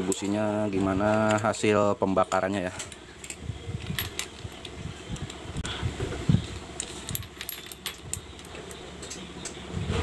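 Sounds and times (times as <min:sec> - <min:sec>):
metal socket clinking and rattling: 0:02.8 - 0:05.4, 0:06.8 - 0:09.2.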